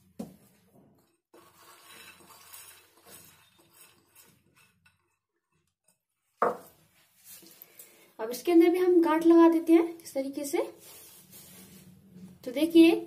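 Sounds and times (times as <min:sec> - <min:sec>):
beans rustling and clinking: 0:00.5 - 0:08.0.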